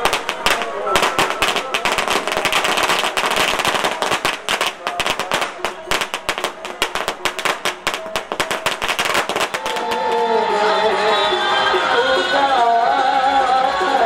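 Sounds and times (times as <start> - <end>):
firecracker string bangs: 0.0 - 10.3.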